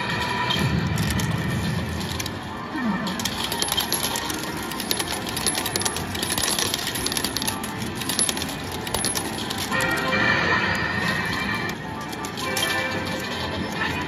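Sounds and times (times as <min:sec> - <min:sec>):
metal medals clattering: 0:03.2 - 0:10.1.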